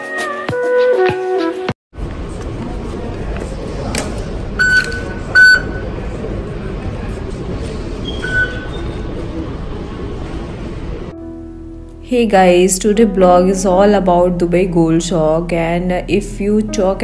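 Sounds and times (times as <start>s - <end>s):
station concourse hum: 2.0s - 11.2s
card reader beeps: 4.6s - 6.0s, 8.1s - 9.0s.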